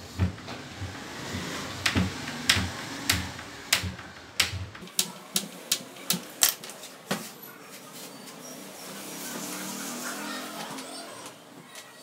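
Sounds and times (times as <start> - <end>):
hammer knocking nails into wood: 1.8 - 5.8.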